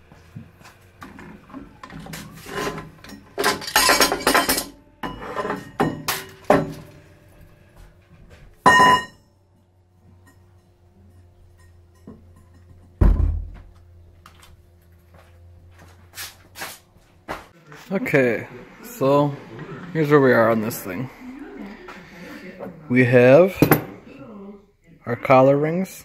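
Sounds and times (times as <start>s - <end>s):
metal scraping on metal: 2.1s - 6.5s
metal parts clinking: 3.0s - 4.7s
ringing metallic clang: 8.6s - 9.2s.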